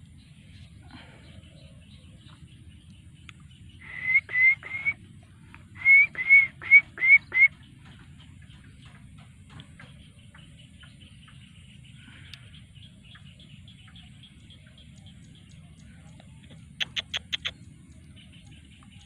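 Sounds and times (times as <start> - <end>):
baby monkey cooing calls: 16.8 - 17.5.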